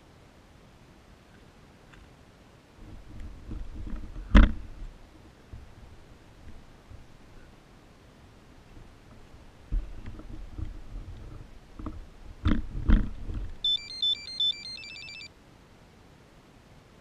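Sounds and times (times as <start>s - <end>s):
electronic beep tune: 13.6s - 15.3s.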